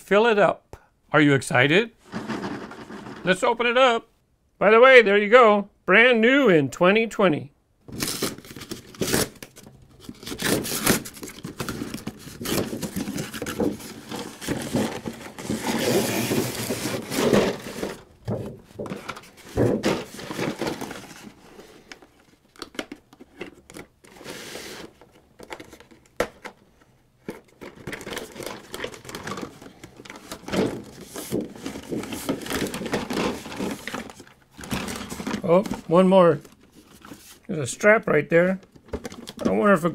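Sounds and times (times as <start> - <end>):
cardboard tearing and rustling: 7.9 - 18.1, 18.8 - 21.5, 27.3 - 37.4.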